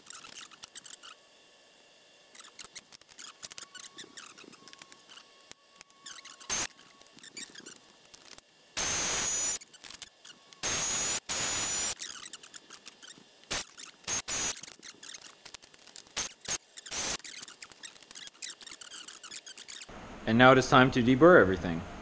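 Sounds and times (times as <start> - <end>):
drill boring through metal: 5.8 - 7.8, 8.8 - 15.3, 16.1 - 19.8.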